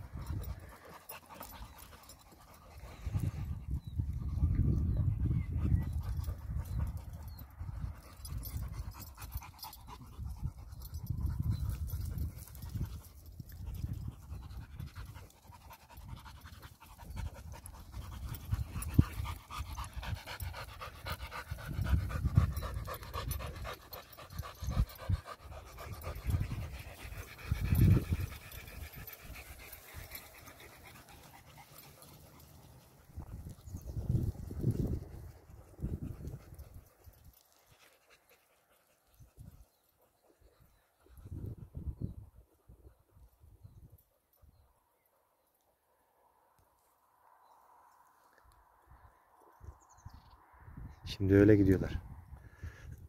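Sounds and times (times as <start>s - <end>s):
dogs digging in dirt: 0.0s - 3.9s, 5.8s - 40.9s
dogs panting: 0.0s - 44.6s.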